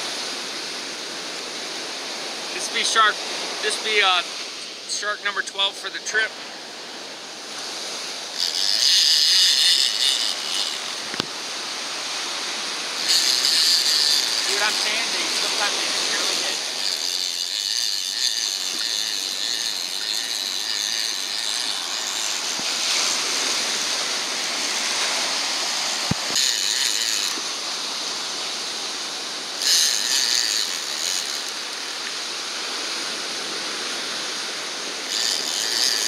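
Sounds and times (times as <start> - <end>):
surf noise: 0.0 - 36.0
fishing reel ratcheting: 7.5 - 36.0.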